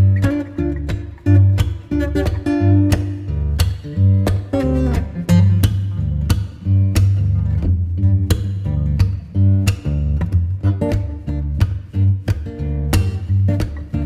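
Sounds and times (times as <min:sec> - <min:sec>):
steady bass line: 0:00.0 - 0:14.0
strummed guitar: 0:00.0 - 0:14.0.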